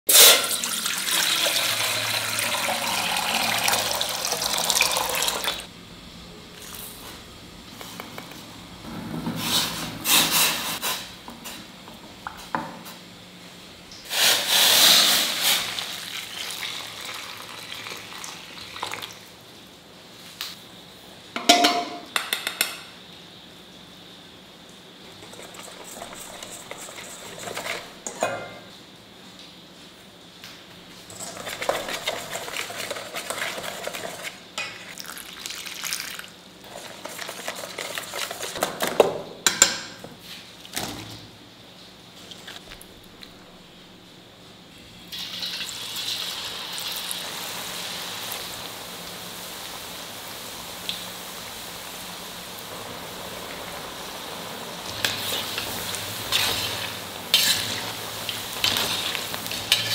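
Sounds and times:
metal spoon clinking on bowl: 21.4 - 22.8.

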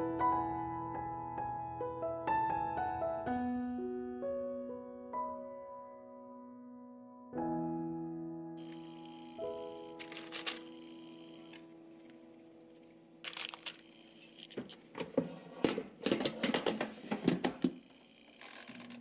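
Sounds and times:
quick clicks and rattles: 9.9 - 11.6, 13.2 - 14.8, 16.1 - 19.0
parchment paper crinkling: 9.9 - 14.9.

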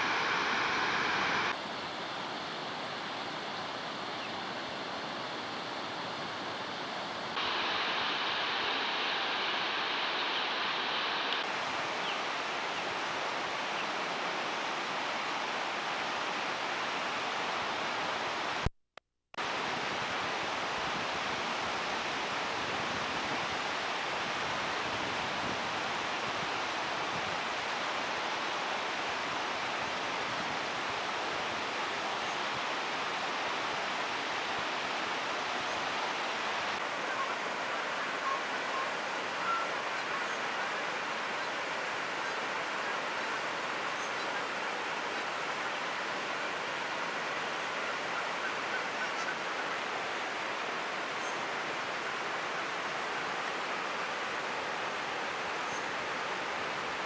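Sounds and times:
river rapids rushing over rocks: 0.0 - 3.0, 7.4 - 18.6.

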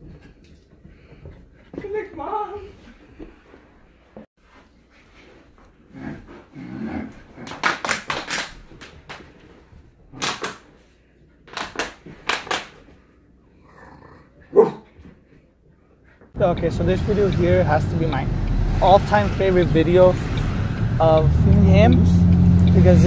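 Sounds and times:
puppy barking: 14.5 - 14.9.

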